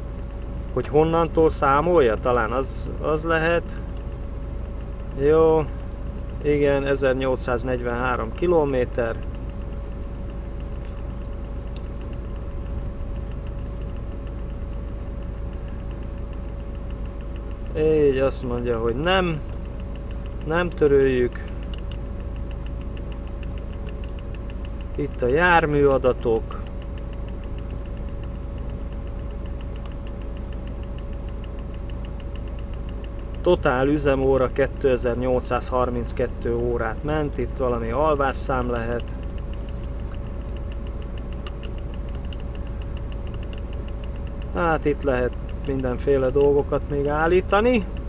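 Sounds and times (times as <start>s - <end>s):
diesel engine idling: 0.0s - 48.0s
faint regular ticking: 0.0s - 48.0s.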